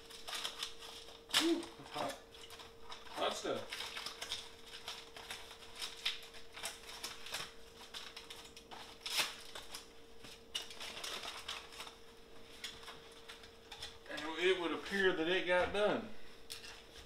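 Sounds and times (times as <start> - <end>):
aluminium foil crinkling: 0.0 - 15.8, 16.4 - 17.0.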